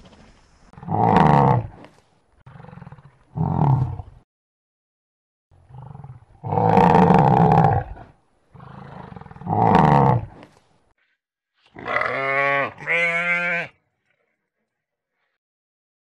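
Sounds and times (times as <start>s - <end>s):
sheep bleating: 11.8s - 13.8s.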